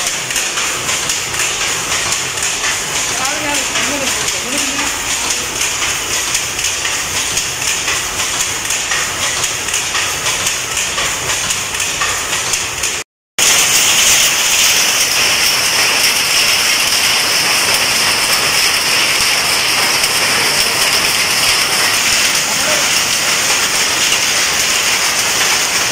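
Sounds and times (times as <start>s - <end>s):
power looms clattering: 0.0s - 25.9s.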